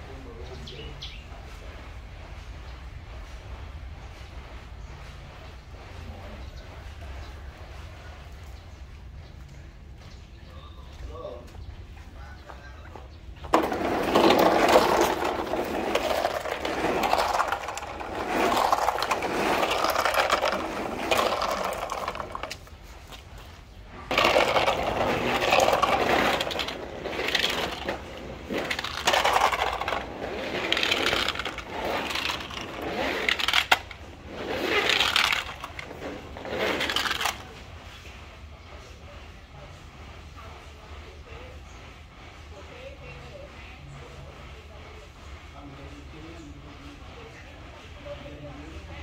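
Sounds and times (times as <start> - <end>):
toy trucks rolling on concrete: 12.4 - 38.1.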